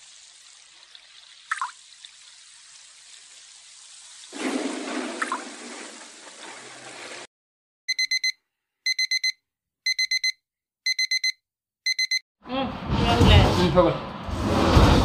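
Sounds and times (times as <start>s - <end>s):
alarm clock beeping: 7.9s - 12.2s.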